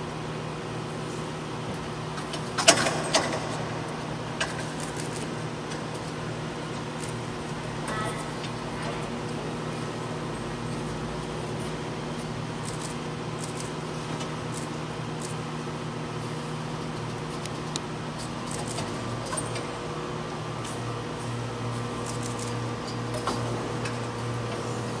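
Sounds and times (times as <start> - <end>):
steady machine hum with tones: 0.0 - 25.0.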